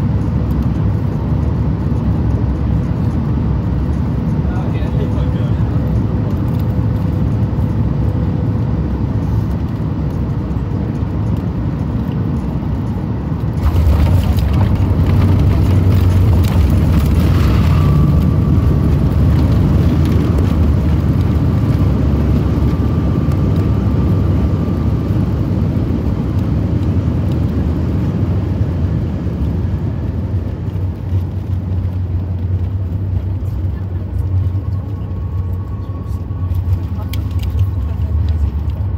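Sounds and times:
jet reverse thrust roar: 13.4s - 30.4s
airplane cabin rush: 13.5s - 21.9s, 31.0s - 38.9s.

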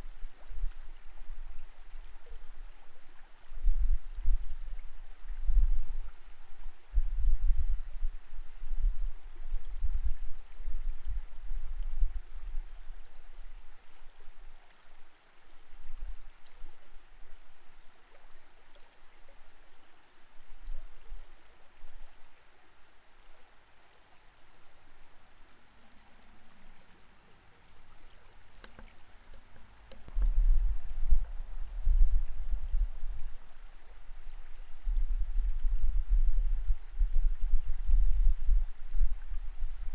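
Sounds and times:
low rumbling bumps: 30.0s - 33.5s.

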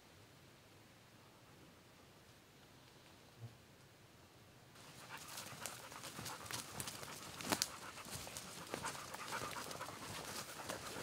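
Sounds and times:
dog panting: 4.8s - 11.0s
leaves rustling underfoot: 4.8s - 11.0s
twigs crackling and snapping: 4.9s - 11.0s.

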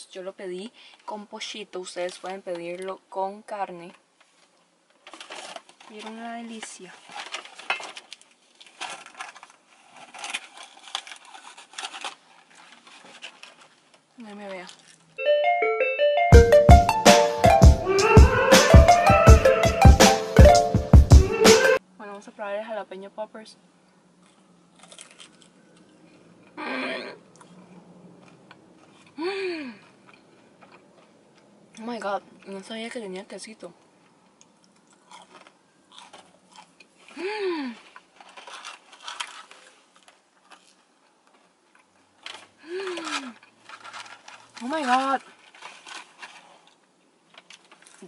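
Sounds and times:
paper wrapper crinkling: 4.2s - 15.2s, 24.2s - 26.3s, 34.5s - 48.0s
woman's drawn-out ooh: 17.5s - 20.0s
woman's breathy murmur: 29.2s - 29.8s.

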